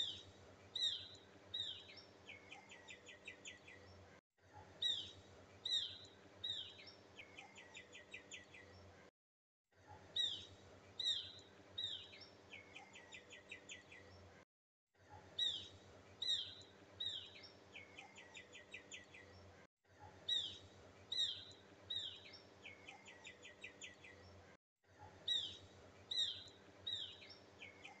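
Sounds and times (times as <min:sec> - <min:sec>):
faint steady hum: 0:00.0 - 0:09.1, 0:15.0 - 0:28.0.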